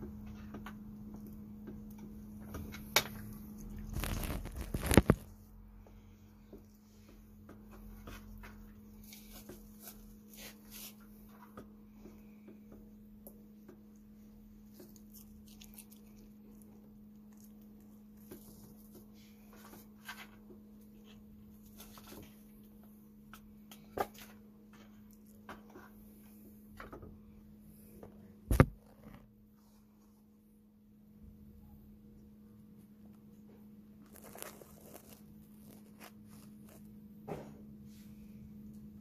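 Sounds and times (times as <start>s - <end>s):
fox chewing food: 14.5s - 19.3s.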